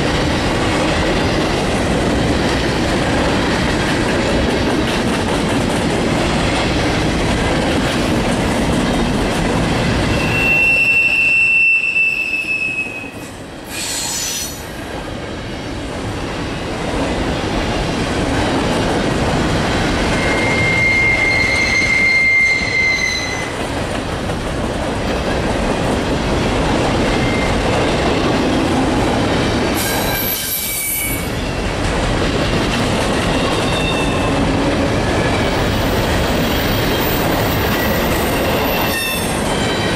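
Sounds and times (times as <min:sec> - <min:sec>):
train wheels rumbling on rails: 0:00.0 - 0:39.9
high wheel squeals: 0:10.1 - 0:14.5, 0:20.0 - 0:23.6.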